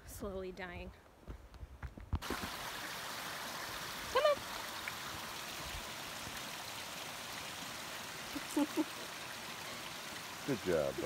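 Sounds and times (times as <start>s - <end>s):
stream rushing over rocks: 2.2s - 11.0s.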